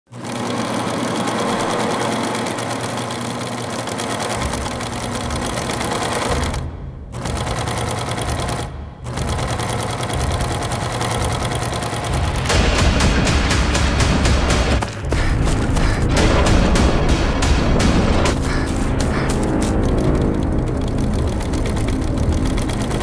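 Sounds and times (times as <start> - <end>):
sewing machine stitching rattle: 0.1 - 12.5, 18.4 - 23.0.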